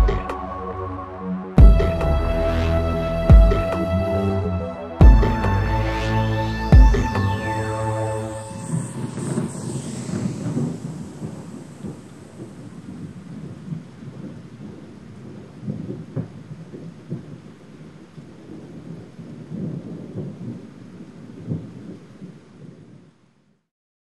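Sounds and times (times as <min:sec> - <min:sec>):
low rumble: 0:00.0 - 0:15.7.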